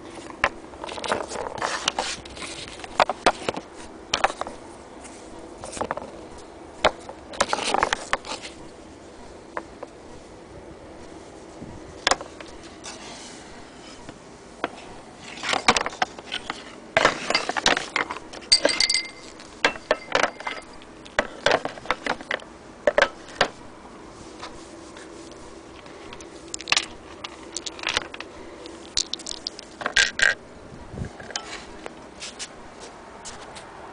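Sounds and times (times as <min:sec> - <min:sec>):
small metal parts clicking and knocking: 0:15.6 - 0:23.1, 0:26.1 - 0:30.4.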